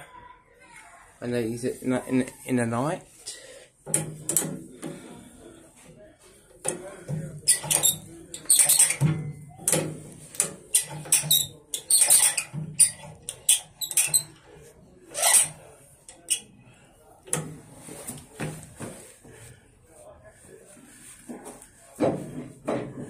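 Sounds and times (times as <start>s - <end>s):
metal lever clicking and squeaking: 7.5s - 14.4s.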